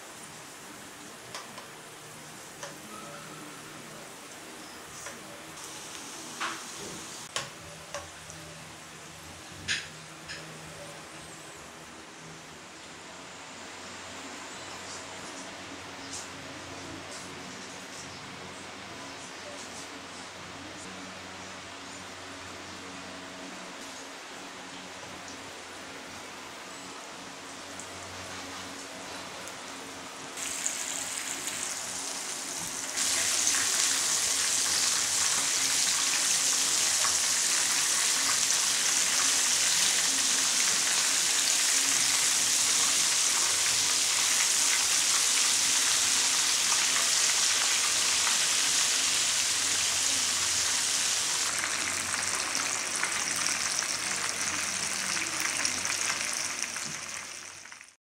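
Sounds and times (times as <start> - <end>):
chicken frying in hot oil: 27.1 - 58.0.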